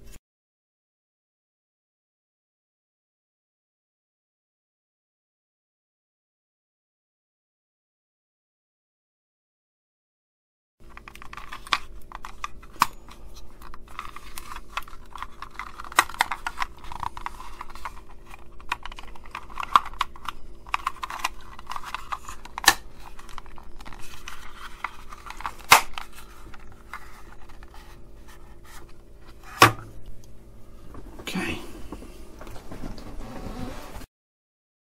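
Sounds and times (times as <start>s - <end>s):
plastic housing rubbing and scraping: 11.1s - 30.0s
sharp plastic clicks: 13.6s - 26.1s.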